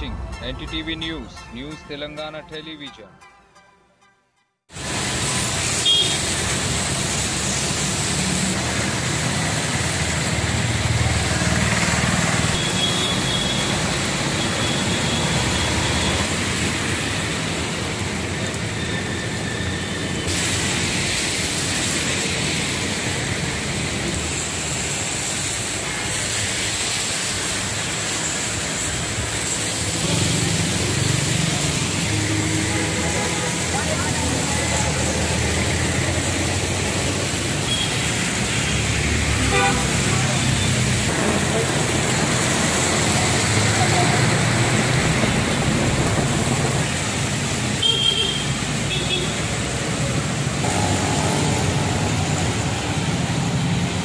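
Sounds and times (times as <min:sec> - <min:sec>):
heavy rain on wet street: 0:04.7 - 0:54.0
motorbikes passing: 0:04.9 - 0:12.7, 0:28.8 - 0:47.9, 0:48.5 - 0:54.0.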